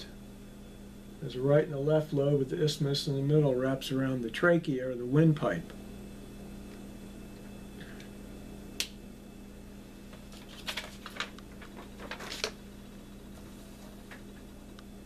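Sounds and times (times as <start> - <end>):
paper rustling: 10.1 - 12.6.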